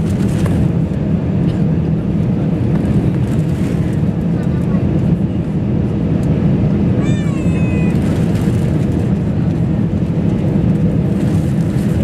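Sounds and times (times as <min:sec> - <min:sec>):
airliner cabin rumble: 0:00.0 - 0:12.0
high-pitched voice: 0:07.0 - 0:08.0.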